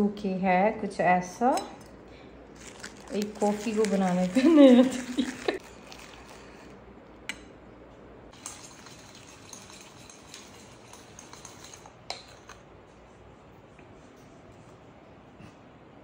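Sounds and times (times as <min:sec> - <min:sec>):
spoon clinking against a cup: 0:08.4 - 0:12.6.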